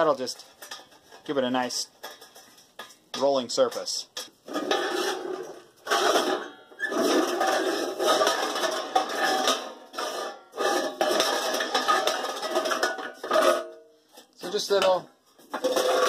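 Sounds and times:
steel scraping on steel: 4.5 - 8.4.

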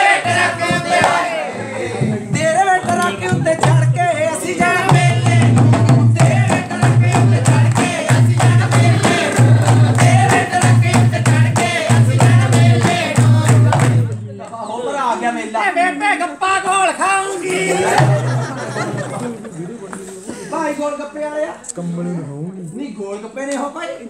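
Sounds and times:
rhythmic hand clapping: 0.0 - 1.4, 2.1 - 14.2
dhol drumming: 2.0 - 14.1, 17.9 - 18.6
women singing folk song: 4.1 - 14.0.

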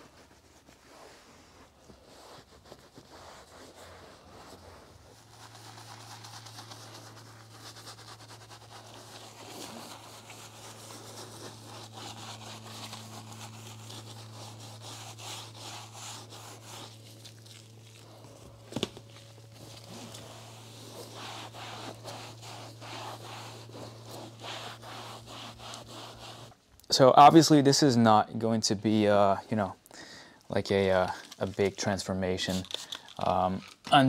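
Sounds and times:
brush scrubbing leather seat: 0.0 - 26.6
low hum: 4.0 - 26.6.

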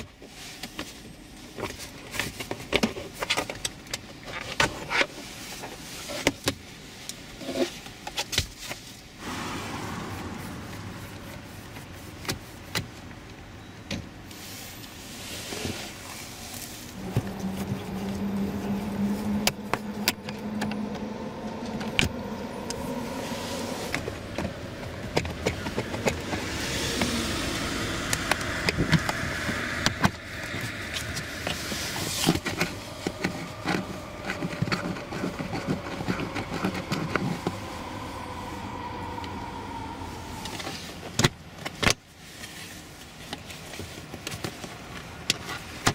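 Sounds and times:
steady mechanical hum: 0.0 - 45.9.

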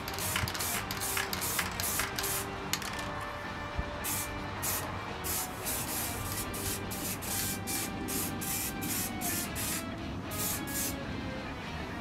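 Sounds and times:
spray paint can hissing: 0.0 - 3.1, 4.0 - 11.0.

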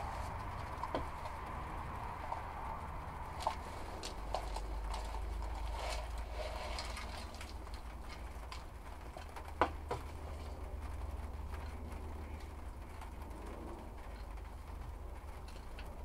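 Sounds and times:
light rustling: 0.0 - 10.7.

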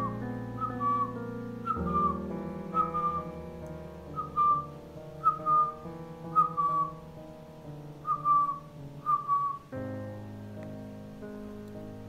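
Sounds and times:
falling whistled note: 0.0 - 3.3, 4.1 - 7.0, 8.0 - 9.7
held music chords: 0.0 - 12.0.

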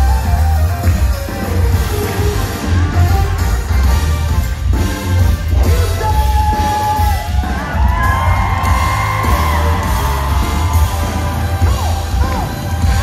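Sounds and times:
live band with man singing: 0.0 - 13.0
crowd whooping: 6.4 - 13.0.

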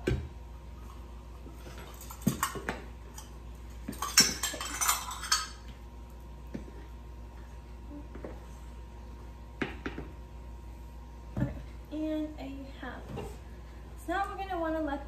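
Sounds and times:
metal cup clinking and scraping: 4.0 - 5.6.

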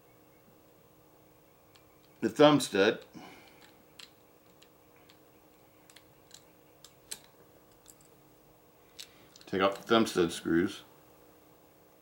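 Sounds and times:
clicks and taps of small tools: 5.9 - 8.1.

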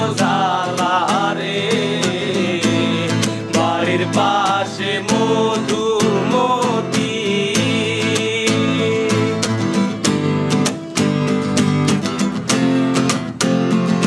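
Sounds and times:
men singing: 0.0 - 9.9
acoustic guitars strumming: 0.0 - 14.0.

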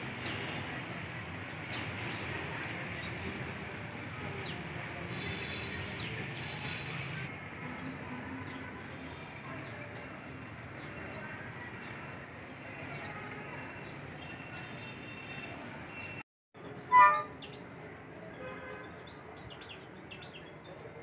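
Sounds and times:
outdoor background noise: 0.0 - 21.0
birds chirping: 13.8 - 17.9.

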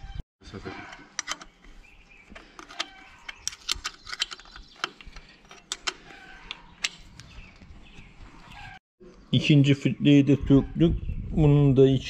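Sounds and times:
spanner clicking on bolt: 1.2 - 1.5, 2.6 - 7.0.

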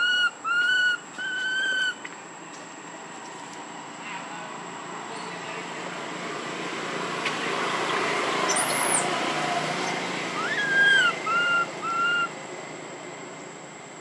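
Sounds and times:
animal calls: 10.3 - 12.4.

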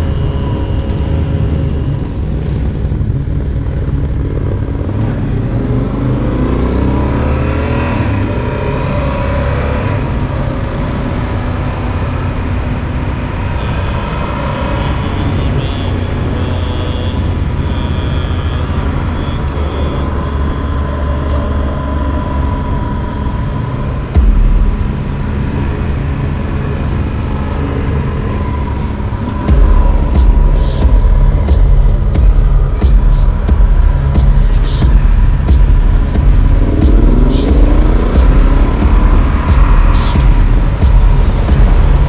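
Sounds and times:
loud low rumble: 0.0 - 42.0
motorcycle engine running: 0.0 - 42.0.

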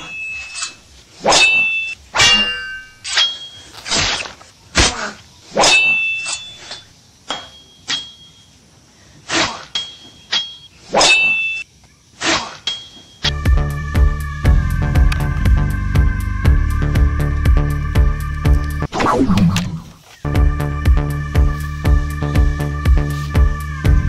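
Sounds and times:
sharp metallic blade clinks: 0.0 - 3.7, 5.6 - 8.6, 9.6 - 11.7, 12.5 - 13.3.

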